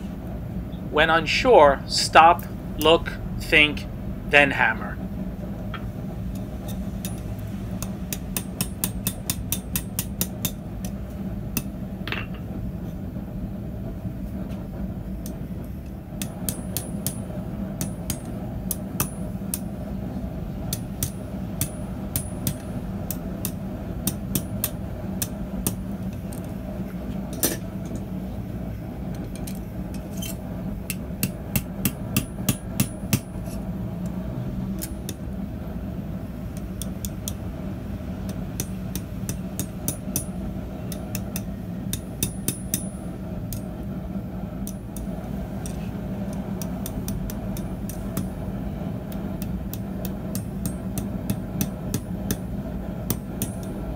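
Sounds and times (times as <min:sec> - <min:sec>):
hammer striking metal on anvil: 0:06.7 - 0:10.6, 0:16.2 - 0:19.7, 0:20.7 - 0:25.8, 0:29.9 - 0:33.6, 0:38.3 - 0:43.7, 0:44.6 - 0:48.4, 0:49.1 - 0:53.8.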